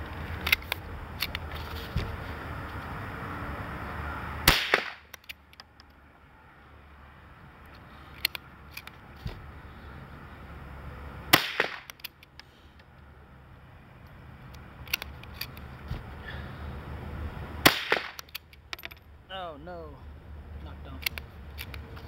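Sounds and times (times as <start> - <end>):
rifle bolt clicks: 0.4 - 1.4, 4.5 - 6.0, 8.2 - 9.0, 11.6 - 12.5, 14.5 - 15.7, 17.7 - 19.0, 21.0 - 21.9
rifle shots: 4.5 - 5.0, 11.3 - 11.9, 17.6 - 18.2.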